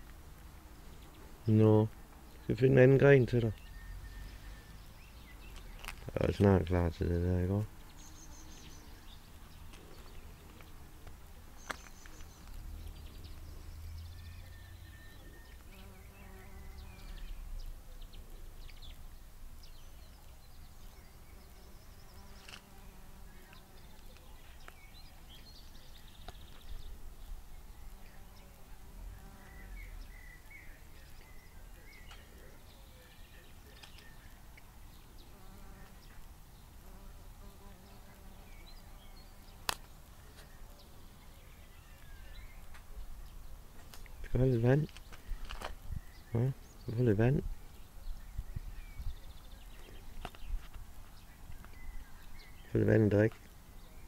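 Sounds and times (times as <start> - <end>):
faint insect buzzing: 3.9 - 19.0, 19.6 - 33.0, 33.7 - 41.4
wind rumble on microphone: 45.2 - 46.2, 47.4 - 49.4.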